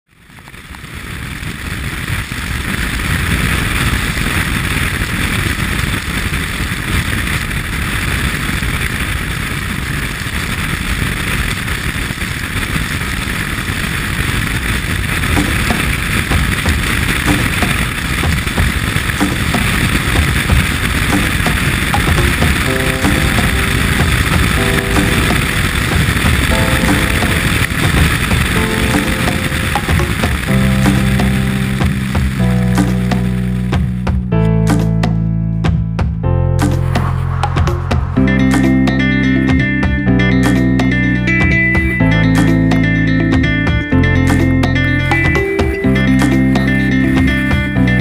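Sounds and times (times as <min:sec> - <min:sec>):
tyres hissing on wet road: 0:00.3 - 0:33.9
wind buffeting a camera: 0:00.4 - 0:32.1.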